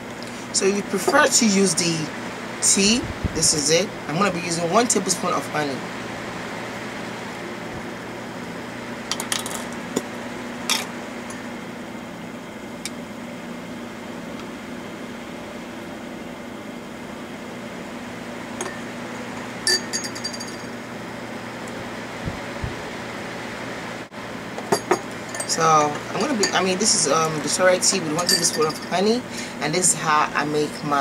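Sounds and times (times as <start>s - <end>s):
steady room hum: 0.0s - 31.0s
teaspoon clinking against mug: 19.7s - 20.7s, 28.2s - 29.1s.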